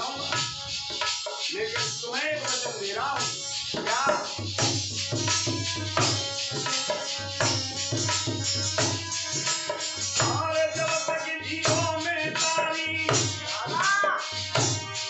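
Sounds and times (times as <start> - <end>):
harmonium melody: 0.0 - 2.2, 3.0 - 15.0
hand drum beat: 0.0 - 15.0.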